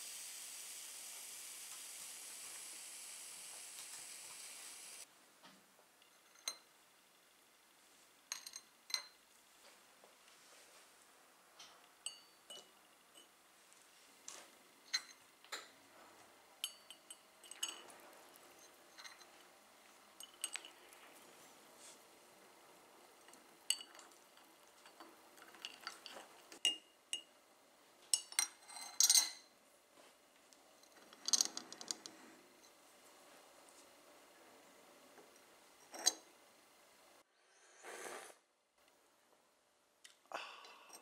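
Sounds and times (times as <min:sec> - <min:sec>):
teaspoon clinking against cup: 0:12.0 - 0:13.3.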